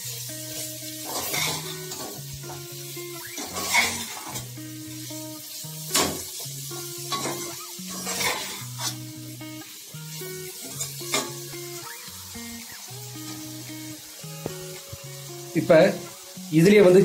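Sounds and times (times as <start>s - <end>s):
background music: 0.0s - 17.0s
potatoes sizzling in a pot: 0.0s - 17.0s
metal spatula scraping a pot: 1.0s - 2.2s, 3.2s - 4.5s, 6.8s - 9.1s.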